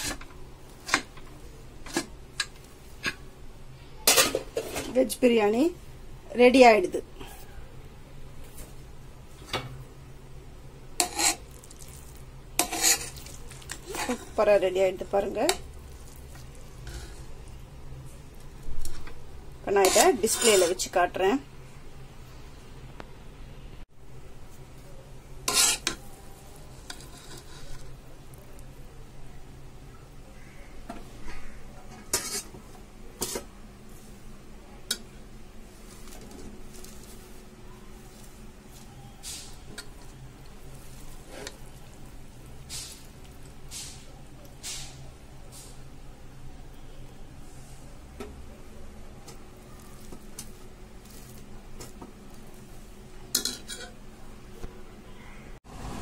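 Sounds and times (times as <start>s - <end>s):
metal spoon scraping a pot: 11.0s - 11.9s, 12.5s - 17.4s, 19.7s - 21.0s, 25.4s - 26.0s, 26.8s - 27.9s, 31.9s - 32.6s, 40.8s - 41.9s, 53.3s - 54.0s.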